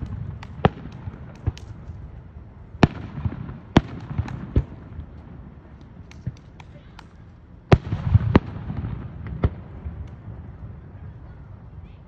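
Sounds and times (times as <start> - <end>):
fireworks crackles and pops: 0.0 - 11.3
fireworks bangs: 2.8 - 5.4, 7.7 - 10.6.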